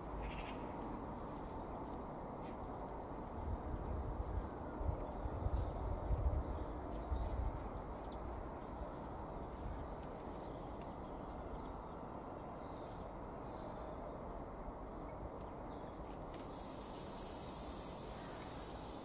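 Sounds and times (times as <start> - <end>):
outdoor background noise: 0.0 - 19.0
high hiss: 16.2 - 19.0.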